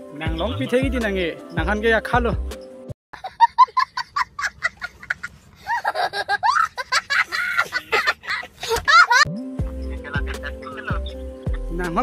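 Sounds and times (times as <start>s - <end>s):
young child laughing: 3.2s - 9.3s, 9.9s - 11.7s.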